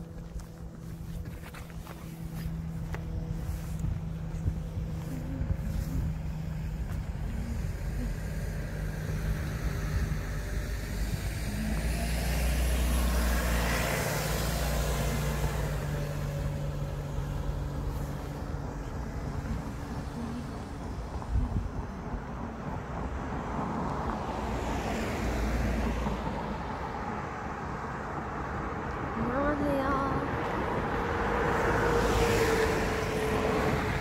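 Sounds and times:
vehicle passing close: 0:00.0 - 0:21.6
road traffic: 0:00.0 - 0:34.0.

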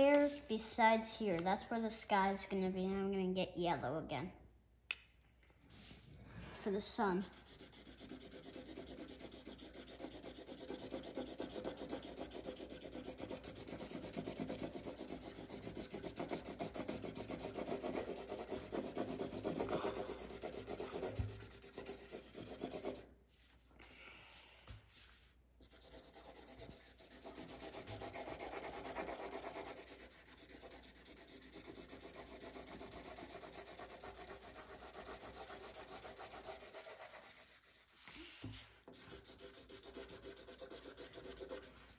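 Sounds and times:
marker scribbling on paper: 0:06.9 - 0:23.1, 0:25.0 - 0:41.9.

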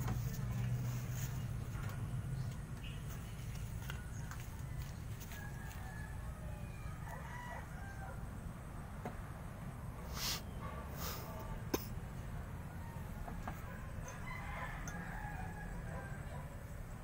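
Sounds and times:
rooster crowing: 0:04.3 - 0:08.4, 0:12.7 - 0:16.6.

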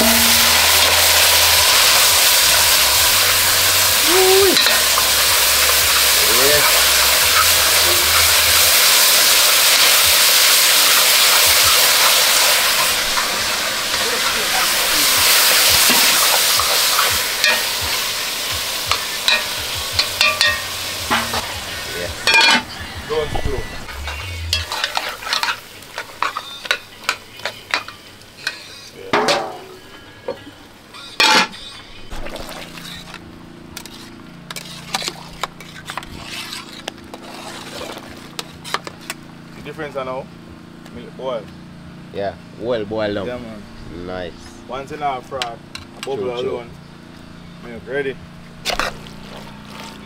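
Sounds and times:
stew sizzling in a pot: 0:00.0 - 0:29.6, 0:31.2 - 0:39.8, 0:48.5 - 0:50.0.

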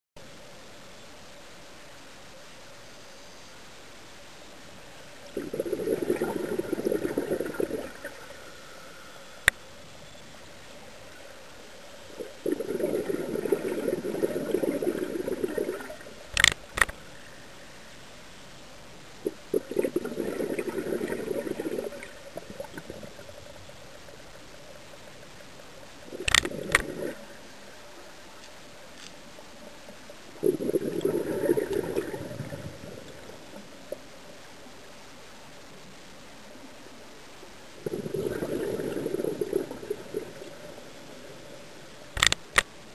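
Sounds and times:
exhaled bubbles rushing underwater: 0:05.2 - 0:08.5, 0:12.1 - 0:16.3, 0:19.2 - 0:25.2, 0:25.8 - 0:27.6, 0:29.7 - 0:34.1, 0:37.8 - 0:41.8
sharp clicks: 0:16.3 - 0:17.0, 0:42.2 - 0:42.7.

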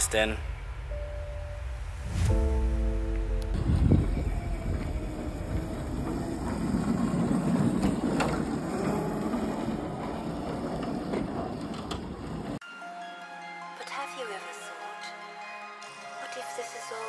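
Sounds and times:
kart wheels scraping on asphalt: 0:03.5 - 0:12.6.

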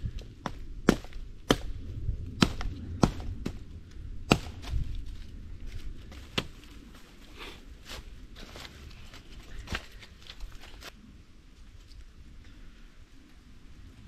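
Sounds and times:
blade chopping into wood: 0:02.4 - 0:03.6, 0:04.3 - 0:04.8.

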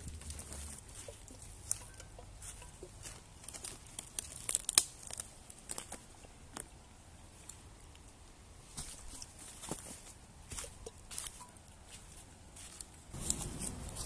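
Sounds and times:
footsteps crunching dry leaves: 0:00.0 - 0:06.0, 0:08.7 - 0:14.0
twigs snapping: 0:00.0 - 0:06.8.

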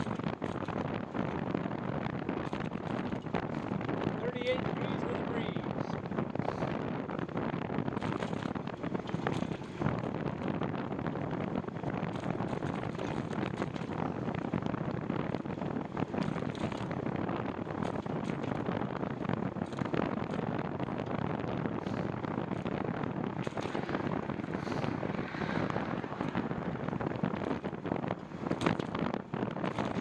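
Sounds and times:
rapid crackling: 0:00.0 - 0:30.0
wind rushing over microphone: 0:00.0 - 0:30.0.

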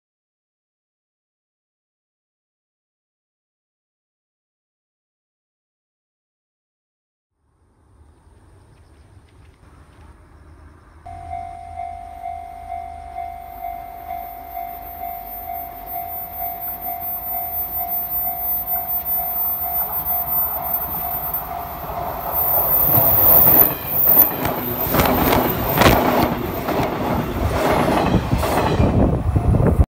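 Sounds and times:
level crossing warning bell: 0:11.1 - 0:27.0
train wheels clattering over rail joints: 0:22.0 - 0:29.2.

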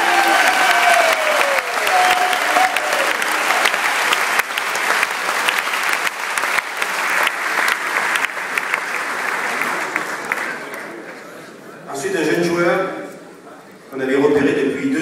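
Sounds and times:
crowd applauding: 0:00.0 - 0:11.3.

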